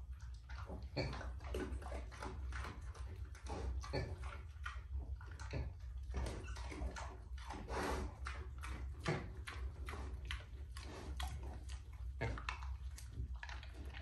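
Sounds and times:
pig sniffing: 0.0s - 14.0s
pig crunching treats: 7.3s - 14.0s.

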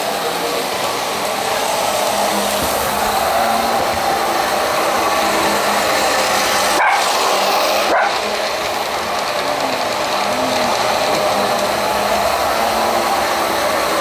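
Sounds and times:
model train motor whirring: 0.0s - 14.0s
small dog barking: 6.8s - 7.2s, 7.9s - 8.3s.

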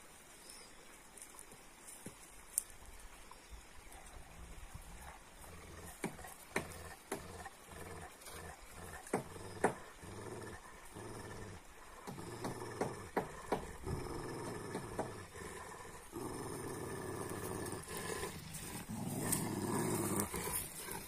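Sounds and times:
dog growling low: 5.0s - 21.0s.

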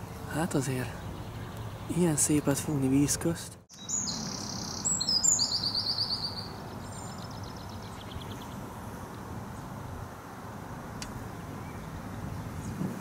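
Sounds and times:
small bird singing: 0.0s - 8.6s, 11.2s - 12.8s.

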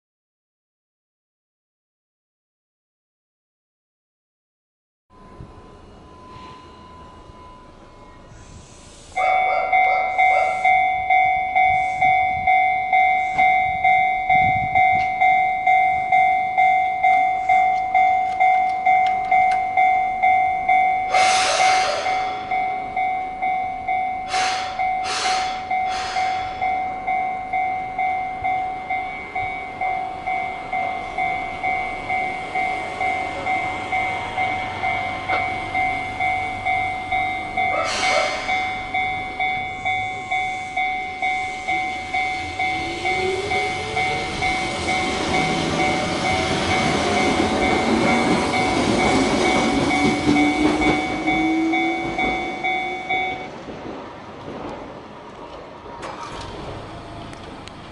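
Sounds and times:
approaching train whine: 5.1s - 57.9s
level crossing bell ringing: 9.2s - 53.6s.

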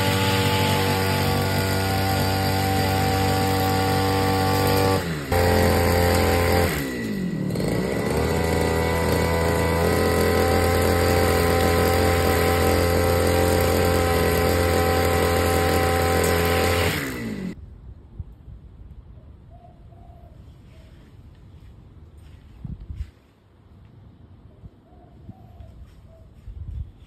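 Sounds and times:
brush cutter engine cutting grass: 0.0s - 17.6s.

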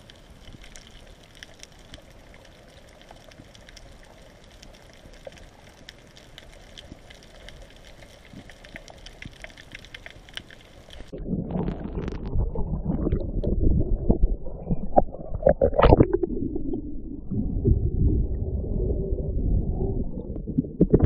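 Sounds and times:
faint crackling clicks: 0.0s - 11.2s
water sloshing and gurgling: 10.7s - 21.0s.

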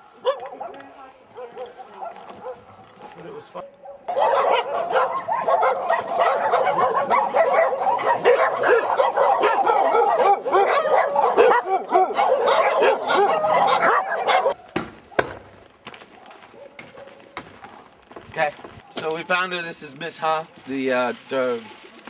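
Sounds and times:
many dogs barking and yelping: 0.0s - 14.6s, 16.1s - 17.9s.

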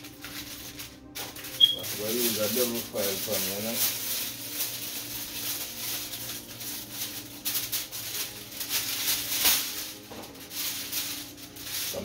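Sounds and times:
aluminium foil crinkling: 0.0s - 12.0s.

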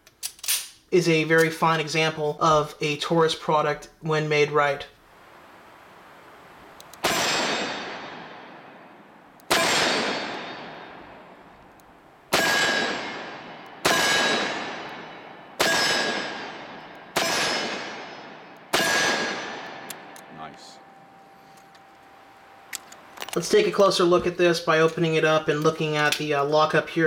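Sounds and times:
revolver gunshots: 6.5s - 20.3s
ringing echo: 7.0s - 23.4s.

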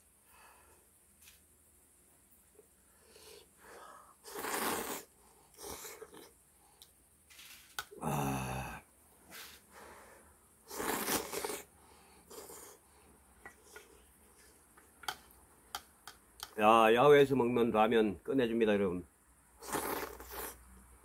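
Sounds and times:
man slurping noodles: 4.2s - 6.3s, 10.7s - 11.7s, 19.6s - 20.6s
short vocal sound: 7.9s - 9.5s.

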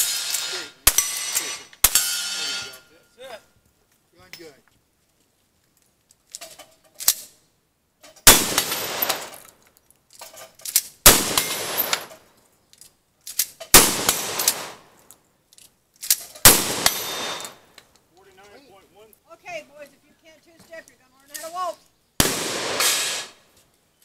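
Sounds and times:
rifle gunshots: 8.2s - 9.4s, 11.0s - 12.1s, 13.7s - 14.9s, 16.4s - 17.7s, 22.2s - 23.4s.

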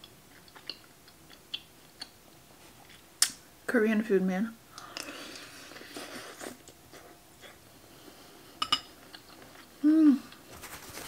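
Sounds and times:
person humming: 9.8s - 10.4s.

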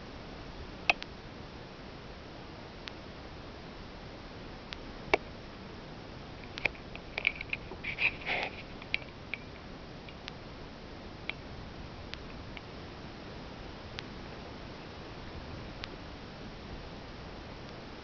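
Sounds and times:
steady hiss: 0.0s - 18.0s
camera handling clicks and rustles: 6.4s - 9.5s.

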